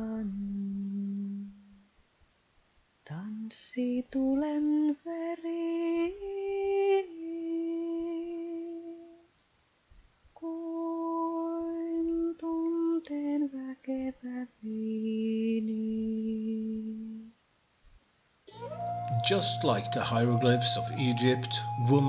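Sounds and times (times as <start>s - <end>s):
woman humming a slow melody: 0.0s - 1.8s, 6.0s - 9.2s, 10.4s - 13.2s, 13.9s - 17.3s, 18.5s - 22.0s.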